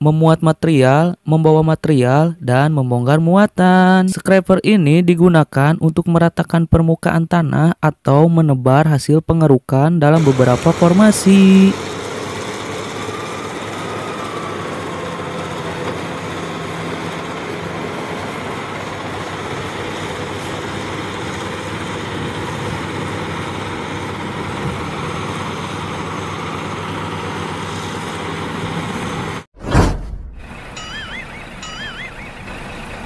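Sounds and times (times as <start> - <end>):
heavy diesel engines running: 10.2 - 29.5, 30.4 - 33.0.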